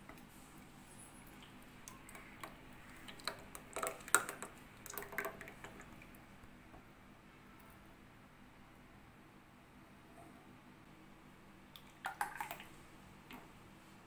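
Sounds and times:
milk pouring into steel tumbler: 1.2s - 6.2s.

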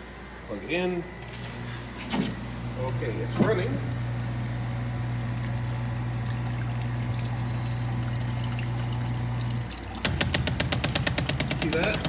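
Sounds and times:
sump pump humming: 0.0s - 12.0s.

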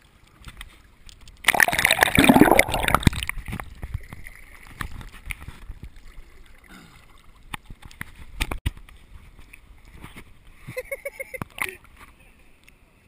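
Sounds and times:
river water splashing and gurgling: 1.4s - 8.3s.

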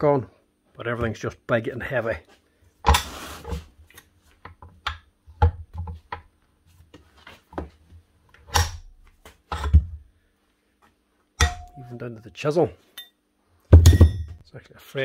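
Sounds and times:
heavy steel tool thudding on floor: 13.7s - 14.4s.

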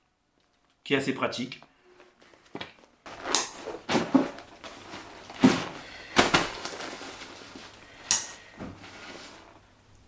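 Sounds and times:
handling knocks and rustles: 2.0s - 9.6s.

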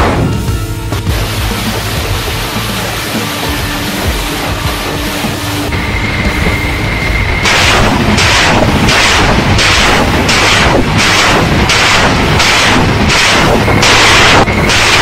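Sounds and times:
loud rocket launches: 6.4s - 15.0s.

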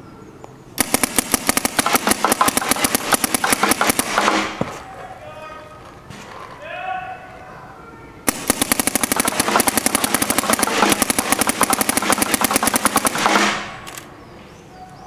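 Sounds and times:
paintball marker rapid firing: 0.8s - 4.8s, 8.3s - 13.9s.

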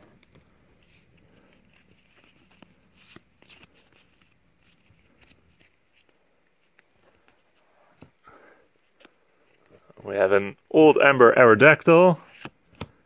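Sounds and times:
trading cards clicking and sliding: 12.3s - 13.0s.

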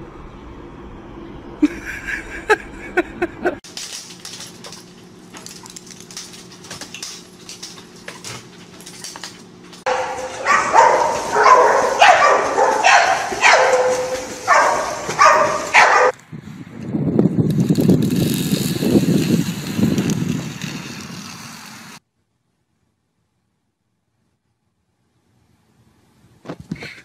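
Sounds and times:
low hum: 0.0s - 15.8s
dog barking and yelping: 9.8s - 16.1s
water splashing: 9.9s - 16.1s.

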